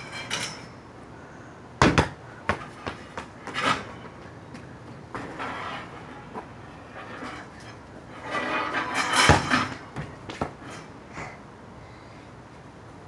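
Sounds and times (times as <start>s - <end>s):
basketball bouncing on hard ground: 1.8s - 5.4s, 9.3s - 10.6s.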